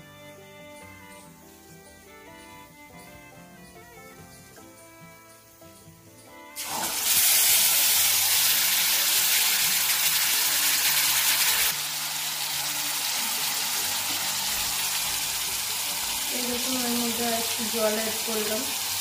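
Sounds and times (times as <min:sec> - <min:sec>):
food sizzling in hot oil: 0:06.6 - 0:19.0.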